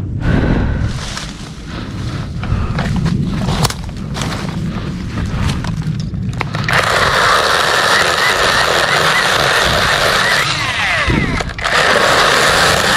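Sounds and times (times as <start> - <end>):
low rumble: 0.0 - 7.3
leaves rustling: 0.9 - 7.4
electric chainsaw running: 6.4 - 12.9.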